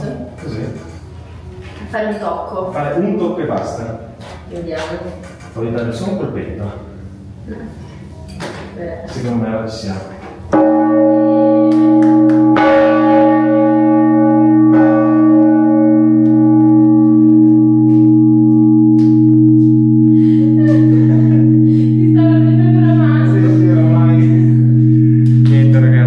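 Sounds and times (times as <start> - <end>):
large church bell ringing: 10.5 - 26.0.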